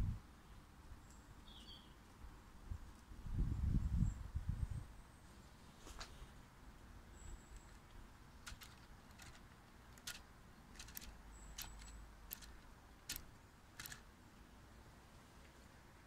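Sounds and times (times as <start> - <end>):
plastic gears clicking and ticking: 7.6 - 14.1.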